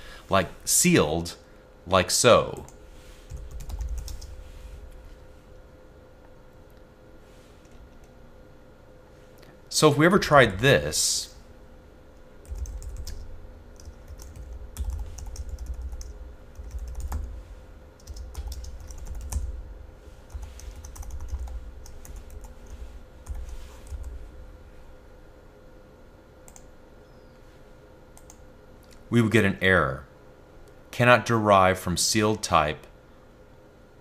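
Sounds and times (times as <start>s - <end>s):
typing on computer keyboard: 3.3s - 4.3s, 12.4s - 13.2s, 13.8s - 17.3s, 18.0s - 19.5s, 20.3s - 22.6s.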